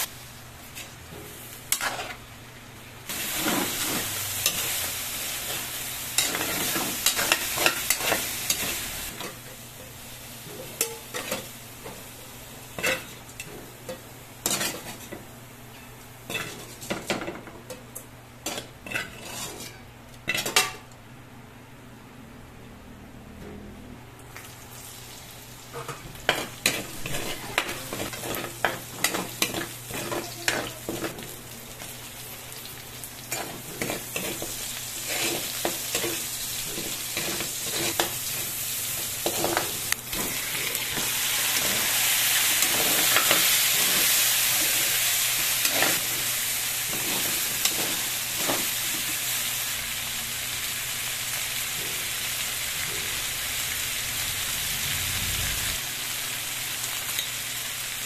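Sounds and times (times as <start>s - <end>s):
food sizzling in a pan: 0.0s - 15.3s, 24.4s - 58.0s
utensil scraping a pan: 18.5s - 19.8s.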